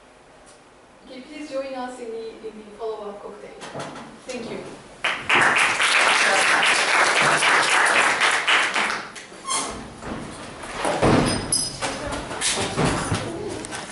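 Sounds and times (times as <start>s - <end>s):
audience applauding: 5.0s - 9.2s.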